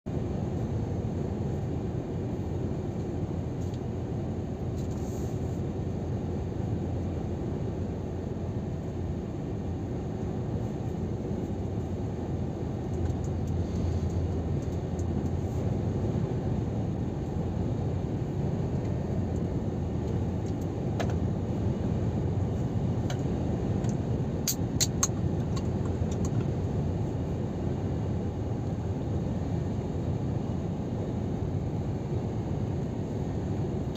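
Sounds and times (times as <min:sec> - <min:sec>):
truck engine and tyre rumble: 0:00.1 - 0:33.9.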